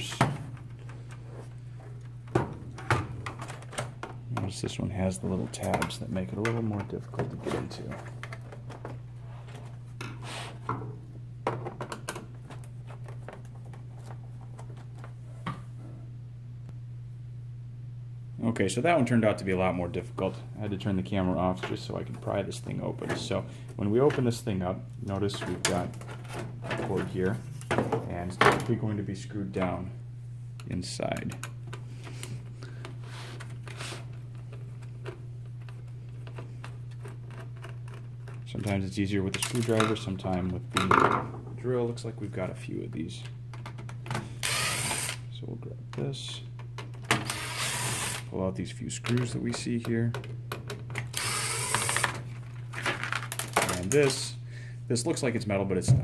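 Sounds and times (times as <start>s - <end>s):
steady low hum: 0.0s - 56.0s
screwdriver turning a screw: 44.4s - 45.2s, 51.2s - 52.1s
hands handling keyboard parts: 52.0s - 54.2s.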